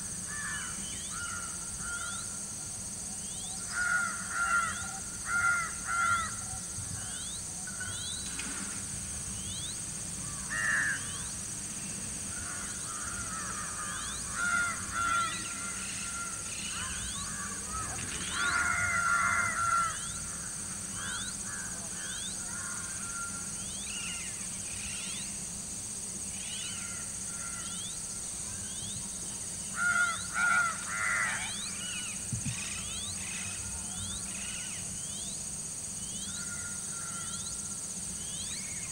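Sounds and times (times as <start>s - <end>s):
high insect drone: 0.0s - 38.9s
harsh bird calls: 12.3s - 25.4s.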